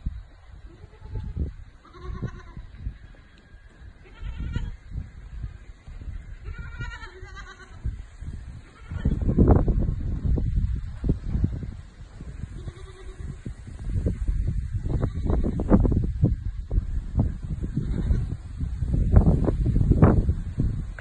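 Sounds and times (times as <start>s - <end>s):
young rams bleating: 0.7s - 2.8s, 4.0s - 4.8s, 6.4s - 8.0s, 8.6s - 9.5s, 12.5s - 13.5s.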